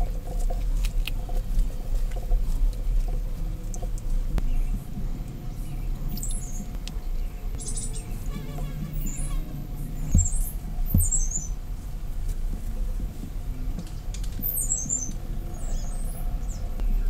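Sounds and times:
low background hum: 0.0 - 17.0
small bird chirping: 5.6 - 11.6, 14.0 - 17.0
soft low knocks: 8.3 - 15.4.

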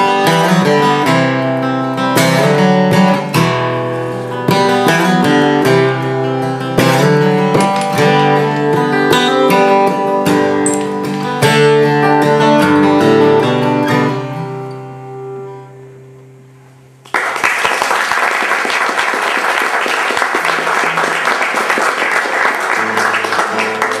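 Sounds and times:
acoustic guitar chords: 0.0 - 17.1, 20.3 - 24.0
audience applause: 17.1 - 24.0.

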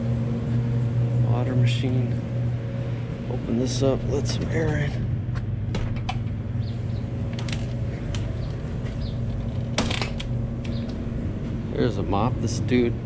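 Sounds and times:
steady low hum: 0.0 - 13.0
door rattling: 4.0 - 11.0
glass door hardware clicks: 5.7 - 6.3, 9.3 - 10.9.

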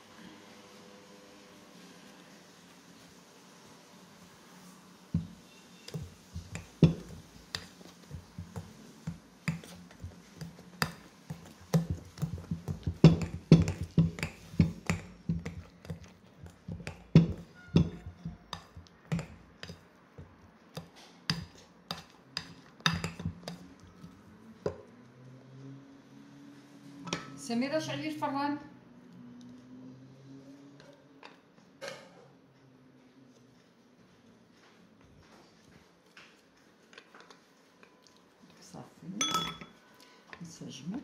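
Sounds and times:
metal masher clinking on glass bowl: 39.2 - 39.8.

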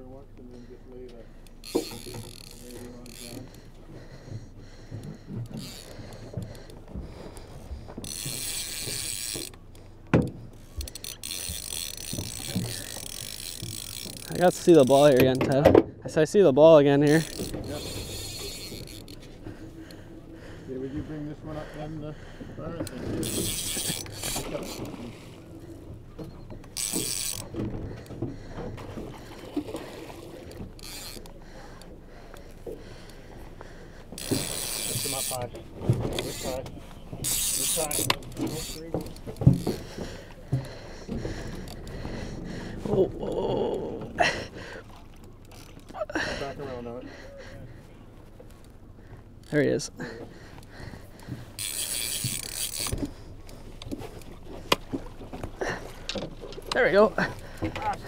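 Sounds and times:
fishing reel ratcheting: 1.4 - 15.5, 17.0 - 20.3, 22.8 - 46.6, 49.4 - 58.0.

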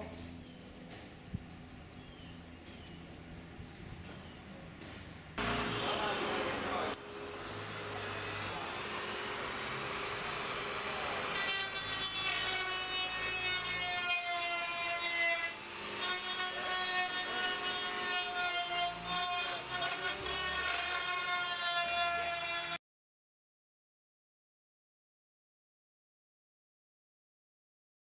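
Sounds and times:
high motor whine: 5.4 - 11.4
rotary tool grinding metal: 5.4 - 22.8.

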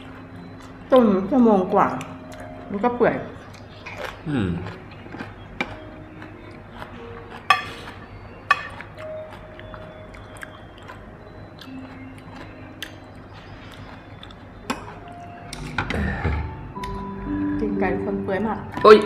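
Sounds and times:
chewing: 0.0 - 17.0
faint background music: 0.0 - 19.0
spoon clinking against glass bowl: 8.5 - 9.1.

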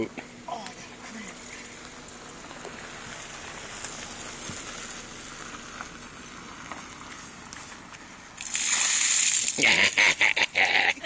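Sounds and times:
water gushing onto gravel: 8.4 - 9.6.

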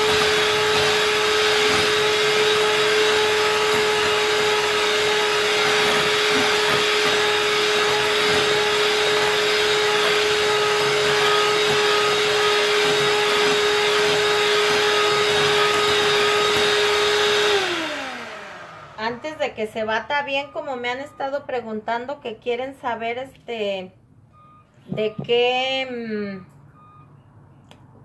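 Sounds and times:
electric mixer running: 0.0 - 19.5.

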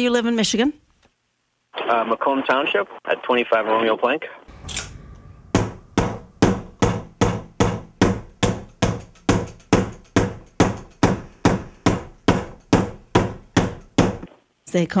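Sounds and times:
knocking on wooden tabletop: 5.5 - 14.3.

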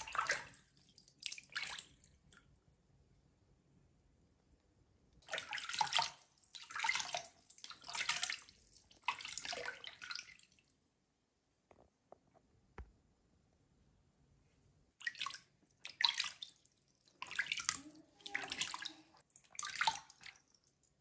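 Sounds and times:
water splashed by hand in basin: 0.0 - 2.4, 5.2 - 10.6, 15.0 - 20.6
faint water drips: 0.0 - 2.7, 5.2 - 10.8, 15.0 - 21.0.

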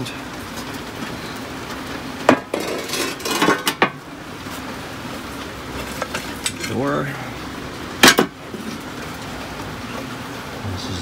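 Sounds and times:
cast iron parts clanking: 2.2 - 4.0, 5.8 - 6.8, 8.0 - 8.8.

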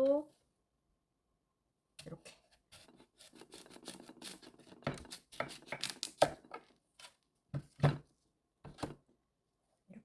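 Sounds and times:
knife cutting radish: 2.0 - 6.4.

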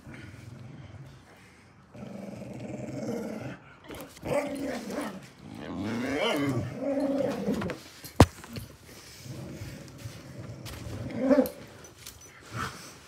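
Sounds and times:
dog growling: 1.9 - 7.8.

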